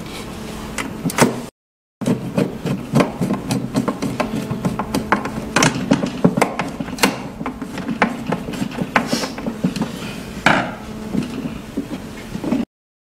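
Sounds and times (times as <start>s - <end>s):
brief scrape: 9.1s - 10.2s
louder knock: 10.4s - 10.8s.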